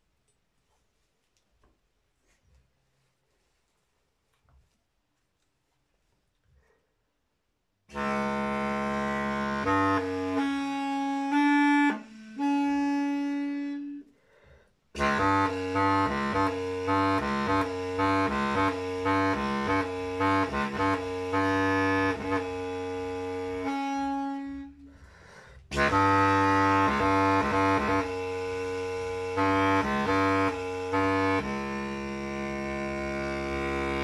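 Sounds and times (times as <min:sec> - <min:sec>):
low reedy wind instrument notes: 0:07.9 - 0:14.2, 0:14.9 - 0:34.0.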